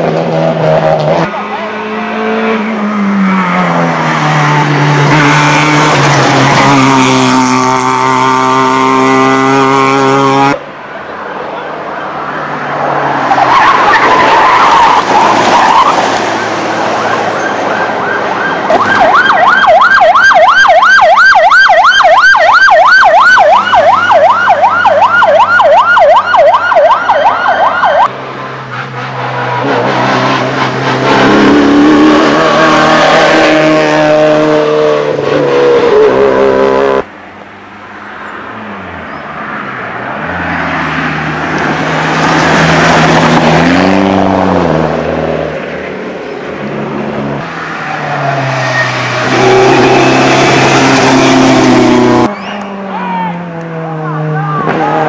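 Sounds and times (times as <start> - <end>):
rally cars rushing past: 0.0 - 21.6, 22.2 - 55.0
siren wailing: 13.2 - 28.1, 47.5 - 55.0.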